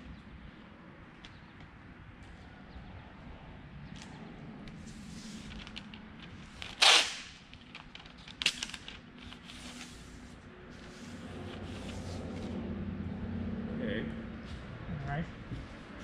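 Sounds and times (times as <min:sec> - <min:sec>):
paper and tape rustling: 0:04.8 - 0:12.6
masking tape ripping off roll: 0:06.4 - 0:10.2.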